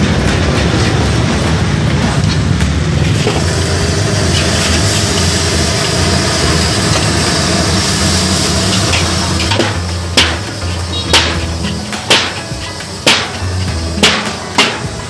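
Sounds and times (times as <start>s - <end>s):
gas burner roaring: 0.0s - 15.0s
metal clang on a wok: 8.7s - 15.0s.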